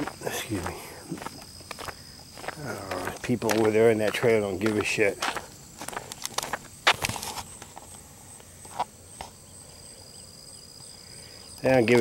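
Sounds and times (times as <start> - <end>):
footsteps crunching on gravel: 0.0 - 8.0
crickets chirring: 0.0 - 12.0.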